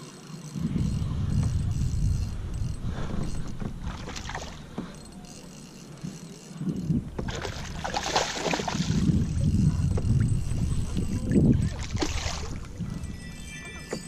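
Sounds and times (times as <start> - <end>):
low wind: 0.0 - 14.0
water noise: 0.0 - 14.0
fish splashing and thrashing: 3.1 - 4.8, 7.1 - 12.8.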